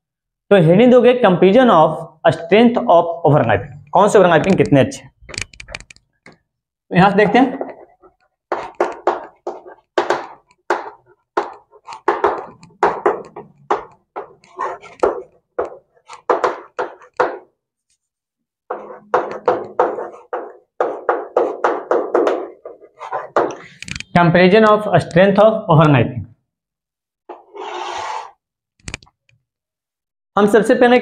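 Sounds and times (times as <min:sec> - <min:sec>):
chalk scratching on blackboard: 0:14.4 - 0:15.3, 0:18.7 - 0:23.5, 0:27.3 - 0:28.4.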